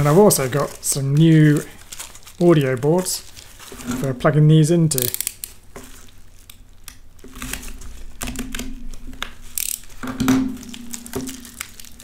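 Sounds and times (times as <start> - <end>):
plastic bubble wrap crinkling: 0.0 - 12.0.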